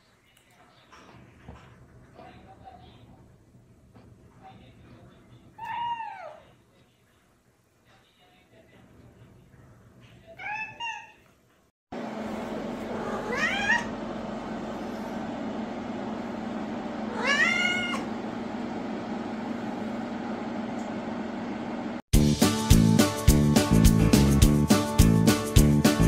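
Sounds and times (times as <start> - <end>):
cat meowing: 12.9 - 13.9, 17.1 - 18.1
music: 22.2 - 26.0.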